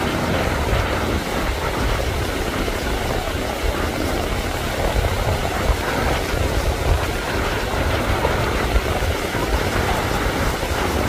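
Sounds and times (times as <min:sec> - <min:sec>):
breaking surf: 0:00.0 - 0:11.0
wind buffeting microphone: 0:00.0 - 0:11.0.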